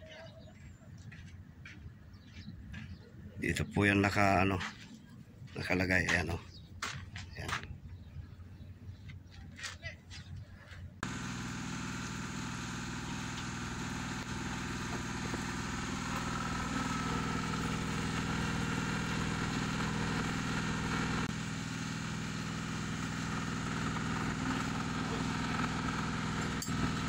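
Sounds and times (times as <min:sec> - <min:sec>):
diesel engine idling: 0:11.0 - 0:27.0.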